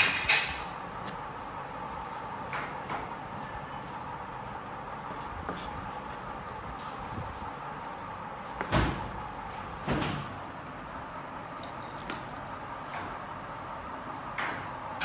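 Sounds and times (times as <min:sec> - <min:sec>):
kitchen hum: 0:00.0 - 0:15.0
utensils clattering on steel table: 0:11.6 - 0:12.5.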